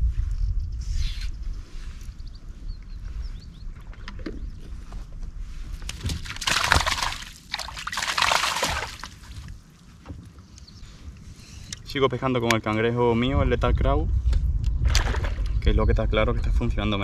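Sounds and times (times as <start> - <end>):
water sloshing and splashing: 3.7 - 10.2, 14.8 - 15.5.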